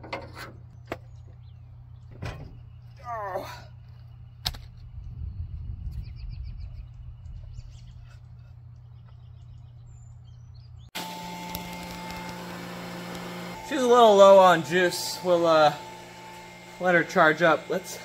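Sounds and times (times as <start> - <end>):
small birds chirping: 0.6 - 11.0
low wind rumble: 3.7 - 10.9
steady electrical hum: 11.0 - 18.0.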